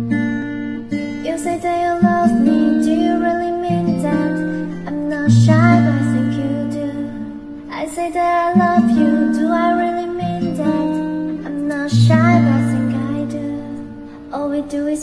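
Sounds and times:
acoustic guitar: 0.0s - 15.0s
woman singing: 1.0s - 15.0s.

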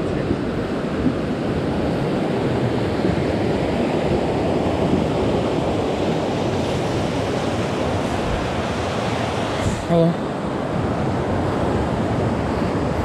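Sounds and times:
river flowing over rocks: 0.0s - 13.0s.

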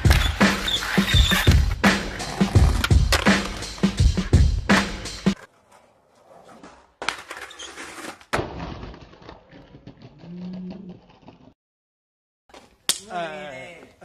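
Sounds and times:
skateboard sliding on rail: 0.0s - 4.0s, 4.7s - 8.3s
skateboard landing smack: 8.3s - 9.2s.

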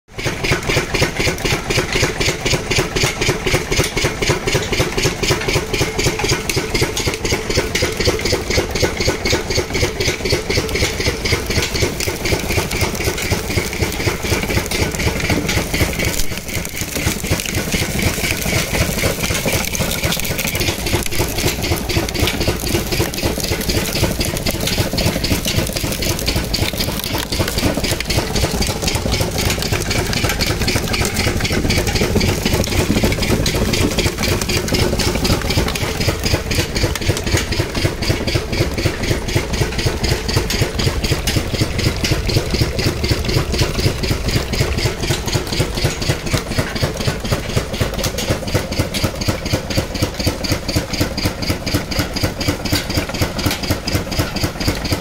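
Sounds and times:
sugarcane crusher running: 0.1s - 55.0s.

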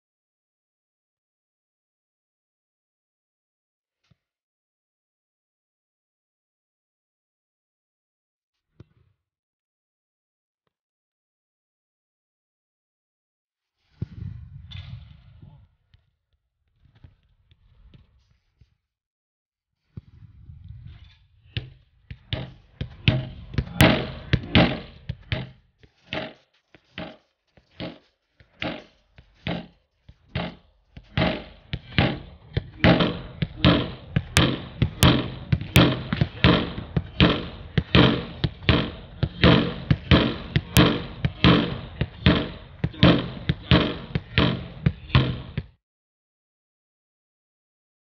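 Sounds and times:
football thudding against rebound board: 22.3s - 26.4s, 28.6s - 29.7s, 30.3s - 45.8s.

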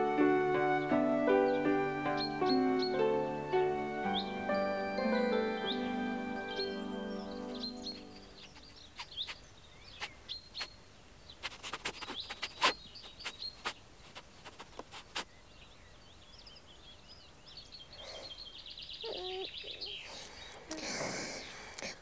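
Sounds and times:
small birds chirping: 1.4s - 22.0s.

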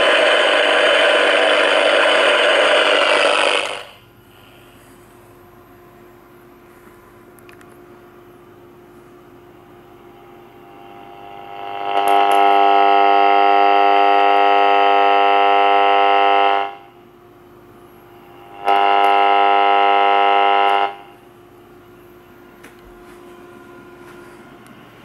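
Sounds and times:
radio interference buzz: 0.0s - 4.6s, 10.0s - 17.0s, 18.1s - 21.2s
radio static hiss: 0.0s - 4.7s, 10.4s - 14.9s, 18.1s - 21.2s.

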